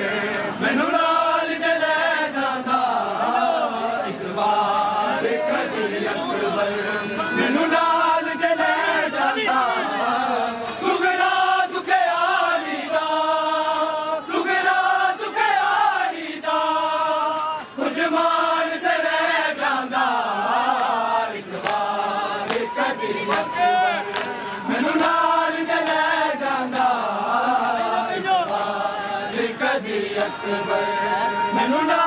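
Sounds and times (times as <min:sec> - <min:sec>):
crowd of men chanting: 0:00.0 - 0:32.0
hands slapping on chests: 0:20.8 - 0:29.5.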